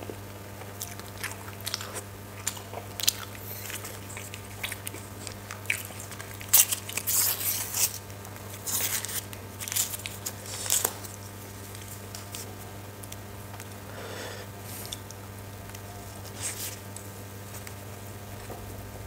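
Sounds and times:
soft chewing: 0.0s - 18.9s
steady low hum: 0.0s - 19.0s
paper wrapper tearing and crinkling: 5.9s - 12.5s.

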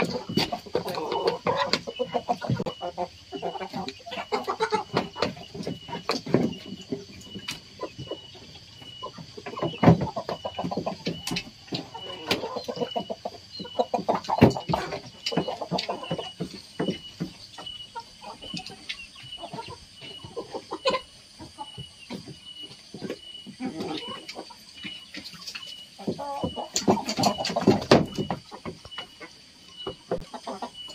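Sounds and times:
beaks pecking grain from basket: 0.0s - 28.8s
chickens clucking: 0.0s - 30.9s.

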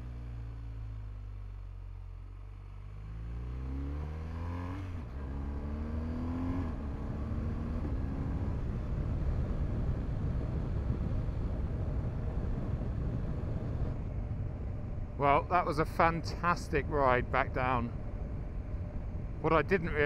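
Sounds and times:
motorcycle engine accelerating: 2.6s - 15.4s
rush of wind noise: 6.9s - 20.0s.

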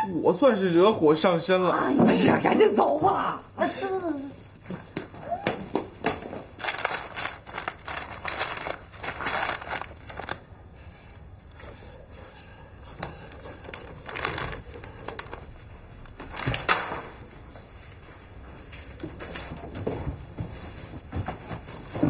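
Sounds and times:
plastic wrapper crinkling: 6.5s - 10.5s, 13.4s - 17.2s.

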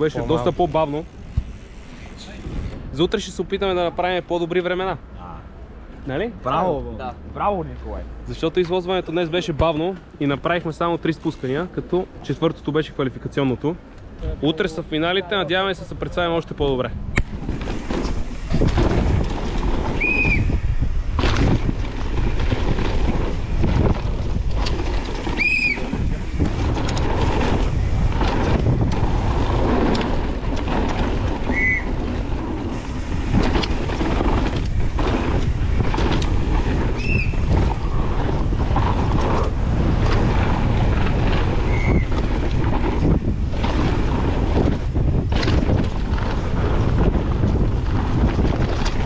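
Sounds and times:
brakes squealing: 0.0s - 3.3s, 14.4s - 49.0s
bike rattling and knocking: 0.0s - 3.8s, 8.3s - 49.0s
wind rushing over microphone: 0.0s - 49.0s.

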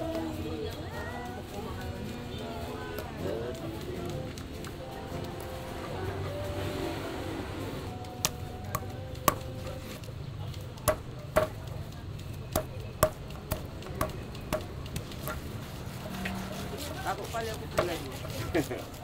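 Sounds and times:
knife chopping on cutting board: 10.8s - 11.6s.

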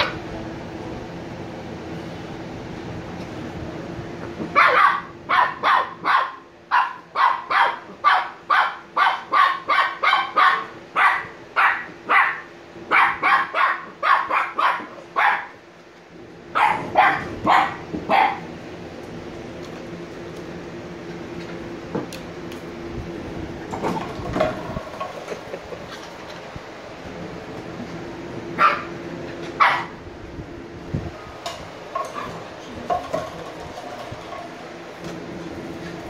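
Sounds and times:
puppy barking: 4.5s - 15.6s, 16.5s - 18.5s, 28.6s - 29.0s, 29.6s - 30.0s.

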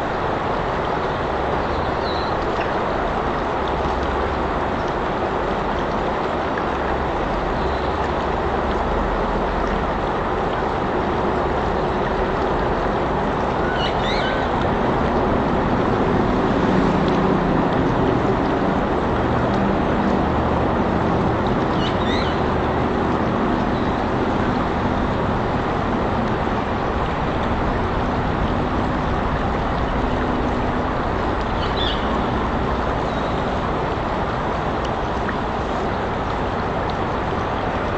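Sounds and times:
vehicle noise: 9.3s - 37.9s.

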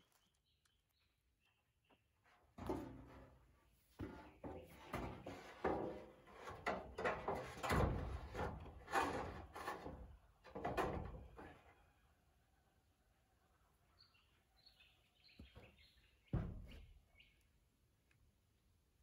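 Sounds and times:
metal roofing sheet scraping: 2.6s - 11.3s.

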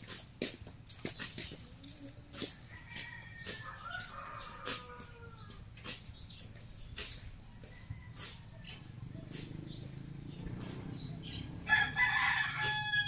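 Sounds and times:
blade swishing through grass: 0.0s - 1.6s, 5.8s - 7.4s, 8.1s - 9.8s, 10.5s - 11.4s.

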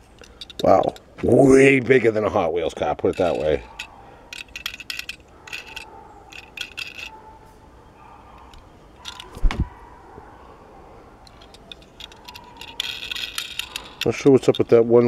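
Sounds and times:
metal toy car clicks and rattles: 0.0s - 1.1s, 2.7s - 7.2s, 8.5s - 9.4s, 11.2s - 15.0s
dull thump: 9.4s - 9.7s.

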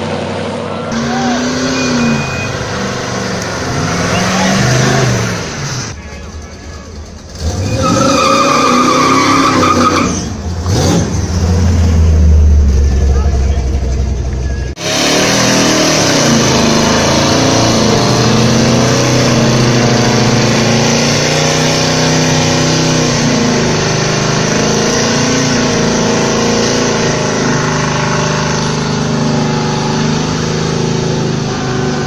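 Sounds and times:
car engine revving high: 0.0s - 6.0s, 7.3s - 32.0s
tyres squealing: 0.9s - 11.6s.

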